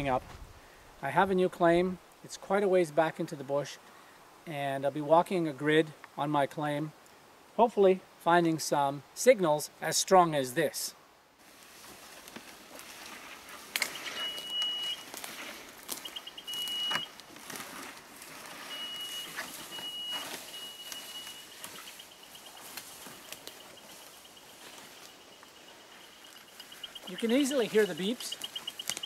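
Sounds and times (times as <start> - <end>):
metal detector beeping: 13.8 - 15.1, 15.9 - 17.2, 18.5 - 29.0.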